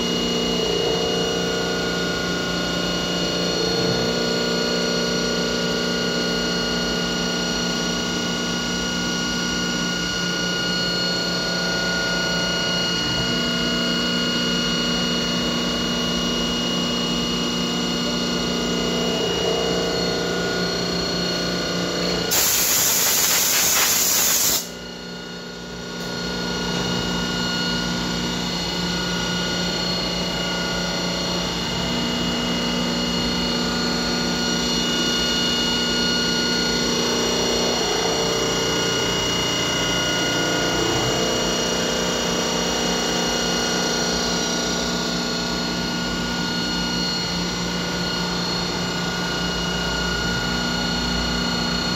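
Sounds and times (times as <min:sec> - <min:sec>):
loud hiss: 0:22.3 - 0:24.7
machine spindle whining: 0:25.9 - 0:51.9.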